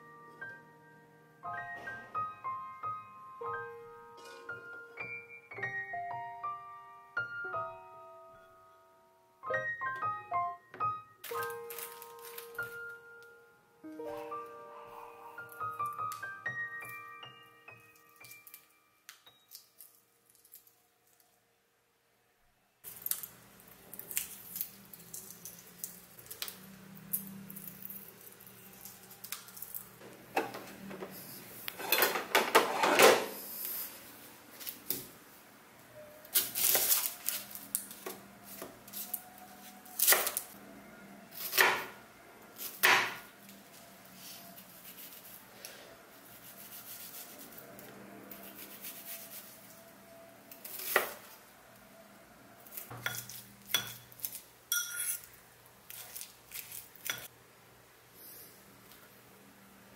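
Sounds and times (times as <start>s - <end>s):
egg shell being peeled: 17.9s - 21.3s, 22.8s - 30.0s
knife slicing onion: 36.3s - 40.5s, 41.3s - 41.9s, 48.3s - 49.6s, 50.6s - 51.3s.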